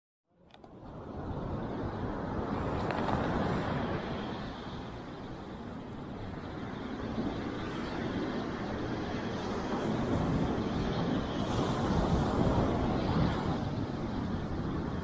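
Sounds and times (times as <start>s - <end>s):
low rushing outdoor noise: 0.3s - 15.0s.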